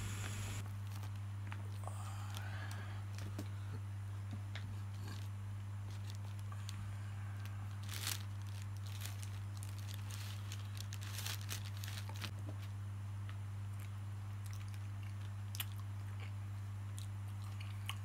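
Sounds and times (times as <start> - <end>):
steady low hum: 0.0 - 18.0
paper wrapping tearing and crinkling: 5.9 - 6.5, 7.4 - 12.4.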